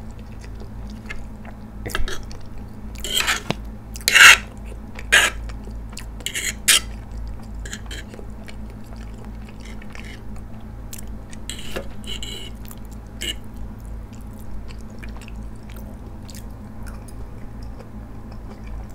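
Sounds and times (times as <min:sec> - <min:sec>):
chewing noodles: 0:00.0 - 0:18.9
fork scraping ceramic plate: 0:01.9 - 0:02.3, 0:03.0 - 0:04.5, 0:05.1 - 0:05.4, 0:06.2 - 0:06.9, 0:07.7 - 0:08.2, 0:09.6 - 0:10.2, 0:11.5 - 0:12.6, 0:13.2 - 0:13.4.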